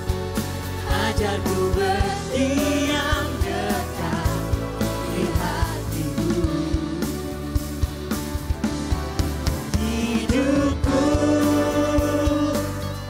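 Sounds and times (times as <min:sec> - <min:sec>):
live instrumental backing: 0:00.0 - 0:13.0
man singing worship song: 0:00.9 - 0:07.4, 0:09.7 - 0:13.0.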